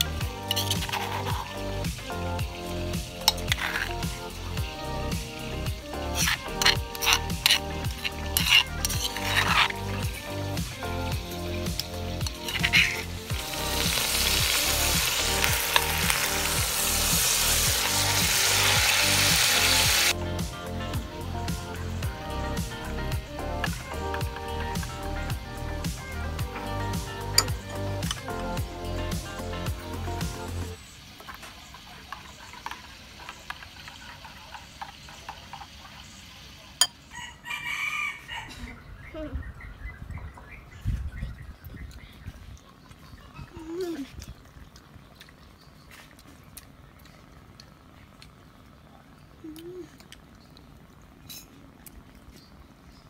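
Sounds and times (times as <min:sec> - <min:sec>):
chicken sizzling in hot oil: 0:00.0 - 0:20.2, 0:22.6 - 0:38.4
metal spoon clinking ceramic bowl: 0:00.5 - 0:01.1
rooster crowing: 0:37.1 - 0:38.7.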